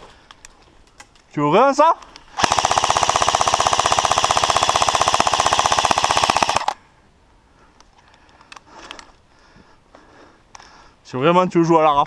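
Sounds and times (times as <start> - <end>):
airsoft rifle full-auto burst: 2.4 - 6.8.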